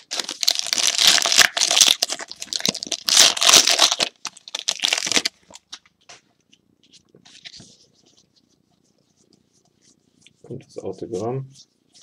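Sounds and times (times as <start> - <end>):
foil wrapper tearing and crinkling: 0.0 - 5.6.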